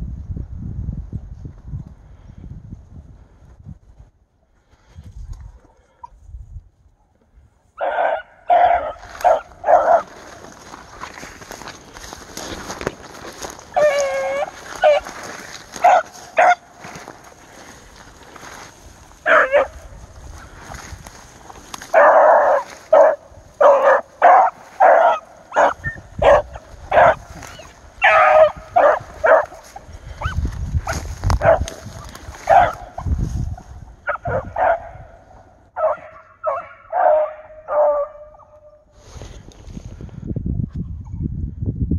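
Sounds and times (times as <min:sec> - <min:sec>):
hounds barking and baying: 0:07.8 - 0:17.8, 0:18.4 - 0:20.1, 0:20.7 - 0:33.1, 0:34.0 - 0:38.8.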